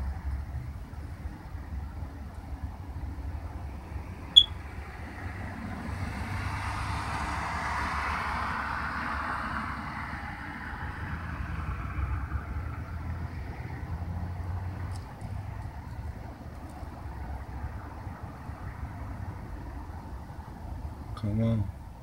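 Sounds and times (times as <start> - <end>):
car driving past: 4.9 - 15.4.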